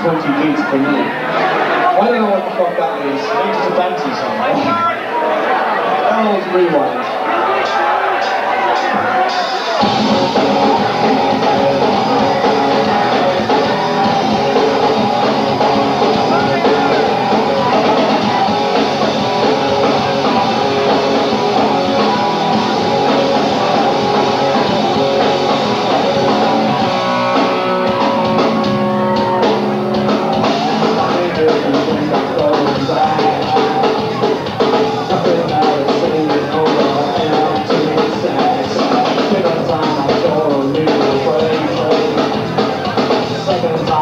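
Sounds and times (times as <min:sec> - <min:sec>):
distorted electric guitars: 0:06.9 - 0:44.0
drum kit: 0:07.6 - 0:44.0
bass guitar: 0:09.8 - 0:44.0.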